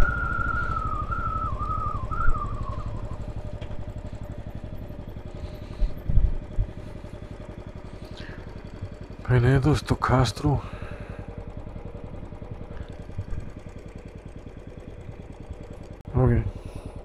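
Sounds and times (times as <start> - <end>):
high whine sliding down: 0.0 - 3.8
motorcycle engine thumping: 0.0 - 16.0.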